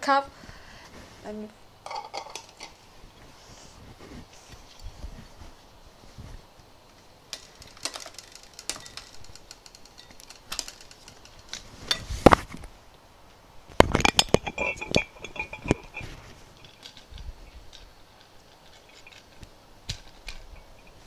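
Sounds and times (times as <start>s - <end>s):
glass bottle clicks and knocks: 13.8s - 16.9s.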